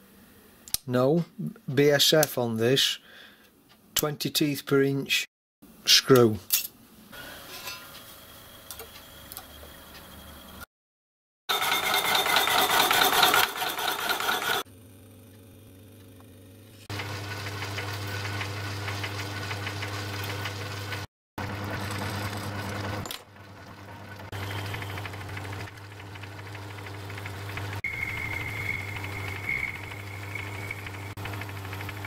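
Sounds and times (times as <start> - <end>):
tool cutting metal: 11.5 - 14.7
metal lathe motor hum: 21.4 - 32.0
high steady whine: 27.6 - 32.0.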